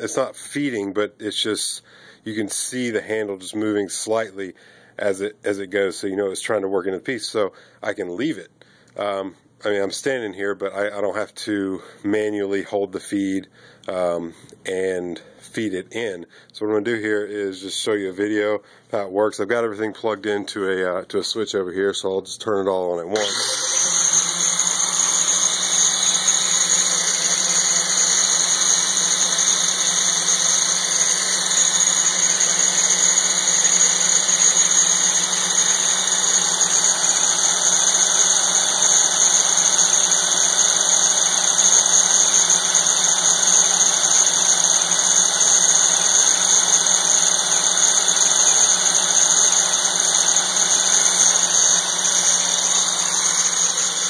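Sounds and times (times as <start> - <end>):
angle grinder grinding steel: 23.1 - 54.0
lathe motor running: 23.1 - 54.0.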